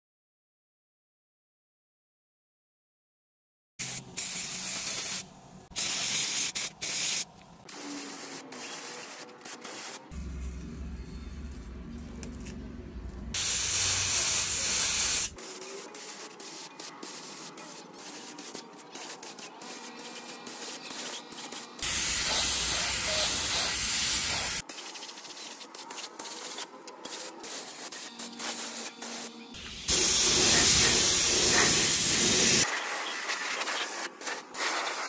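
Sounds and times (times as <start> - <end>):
spray gun hissing: 5.8 - 10.1, 13.4 - 25.2, 26.2 - 35.0.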